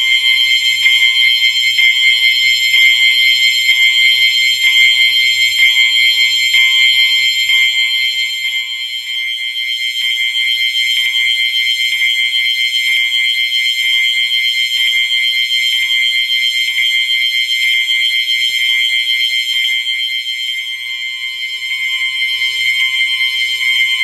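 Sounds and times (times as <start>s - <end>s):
fire alarm horns buzzing: 0.0s - 24.0s.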